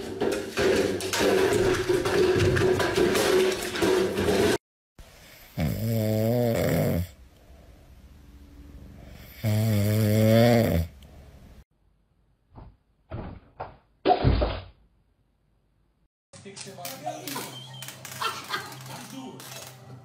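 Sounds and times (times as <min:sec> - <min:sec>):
cat snoring: 0:05.5 - 0:07.2, 0:09.0 - 0:11.0.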